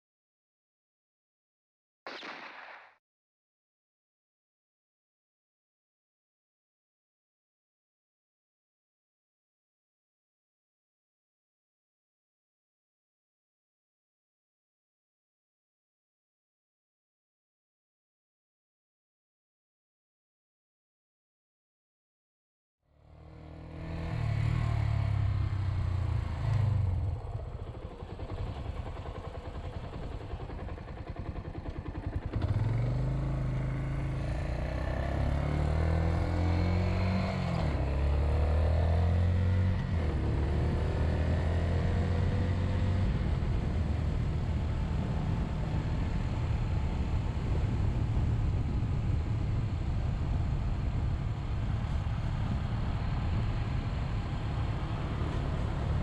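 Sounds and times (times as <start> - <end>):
motorcycle engine revving: 23.0 - 47.4.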